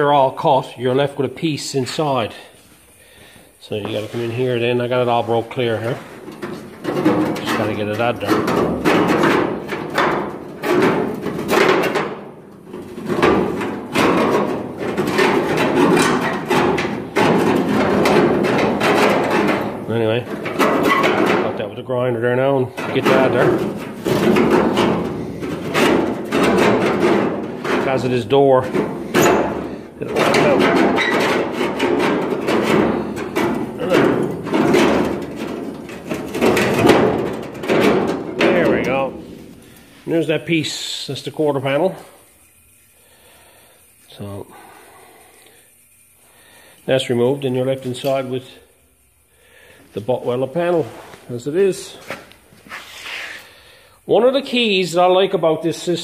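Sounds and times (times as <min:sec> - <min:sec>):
sheet metal banging and rattling: 0:03.7 - 0:40.4.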